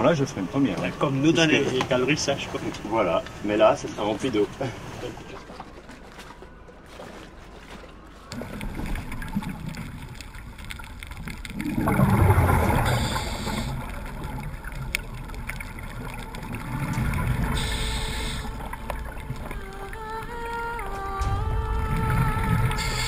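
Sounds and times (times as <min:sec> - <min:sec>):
boat running at sea: 0:00.0 - 0:23.0
bubbles gurgling from regulator: 0:08.3 - 0:23.0
inhaled air hissing: 0:12.6 - 0:14.0, 0:17.4 - 0:18.8, 0:22.6 - 0:23.0.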